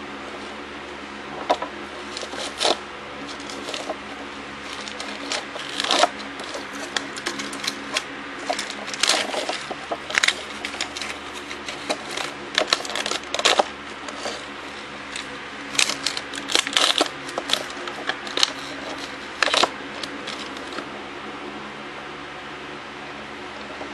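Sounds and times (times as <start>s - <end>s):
steady low hum: 0.0s - 23.9s
plastic bricks clicking and rattling: 1.5s - 4.0s, 4.7s - 14.5s, 15.1s - 20.8s.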